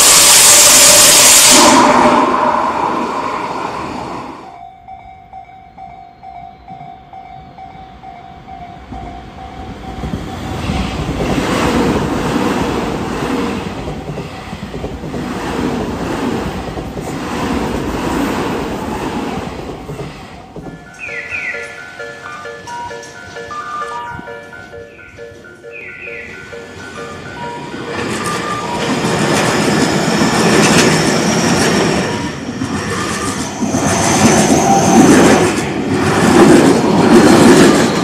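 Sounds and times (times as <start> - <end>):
loud rushing noise: 0.0 - 4.6, 29.3 - 38.0
electric train passing: 0.0 - 38.0
level crossing bell ringing: 20.5 - 29.2.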